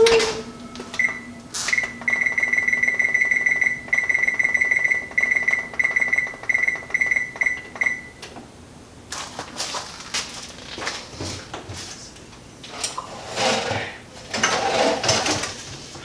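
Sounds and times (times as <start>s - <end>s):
oven control panel beeping: 0.0s - 8.4s.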